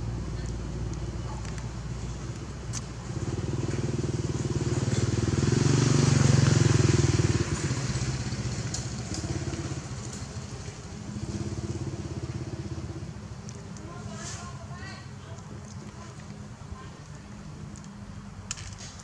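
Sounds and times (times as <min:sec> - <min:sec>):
motorcycle engine passing by: 0:03.0 - 0:13.2.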